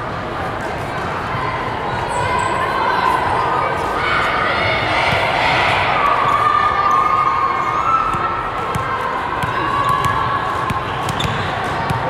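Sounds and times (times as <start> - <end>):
spectators chattering: 0.0 - 12.0
volleyball bouncing on wooden court: 8.0 - 12.0.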